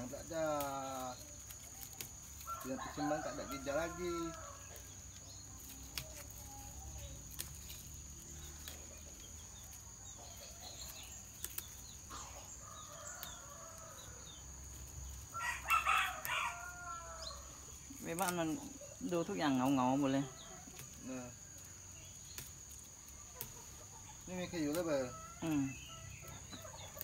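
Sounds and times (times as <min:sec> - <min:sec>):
rooster crowing: 0:02.4 - 0:04.8, 0:15.3 - 0:17.6.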